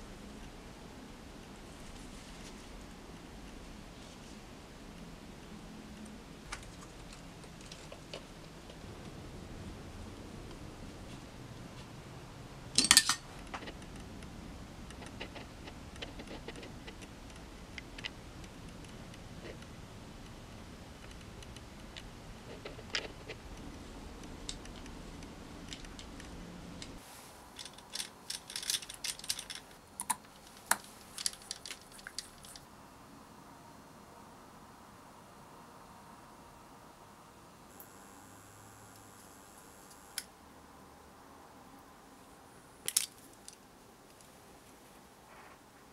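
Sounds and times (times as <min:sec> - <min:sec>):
hand tools clicking on metal: 0:12.8 - 0:13.8, 0:27.6 - 0:32.6.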